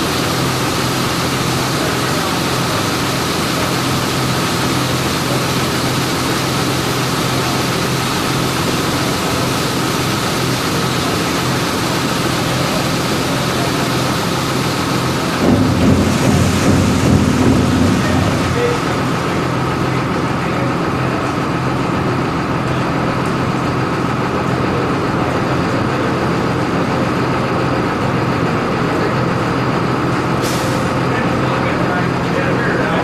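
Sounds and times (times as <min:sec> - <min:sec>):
truck engine running: 0:00.0 - 0:33.0
high whine: 0:15.2 - 0:20.6.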